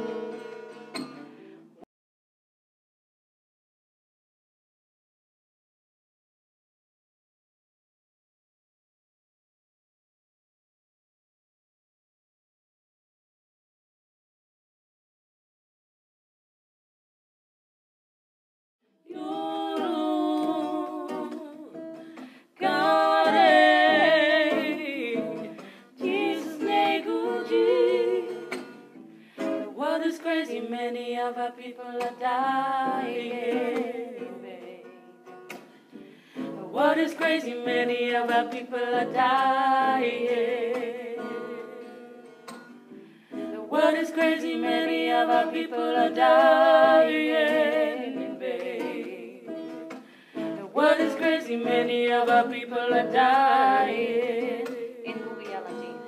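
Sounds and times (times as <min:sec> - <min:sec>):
plucked string accompaniment: 0:00.0 - 0:01.8, 0:19.1 - 0:56.0
person singing: 0:19.1 - 0:28.8, 0:29.4 - 0:35.0, 0:36.3 - 0:42.3, 0:43.4 - 0:56.0.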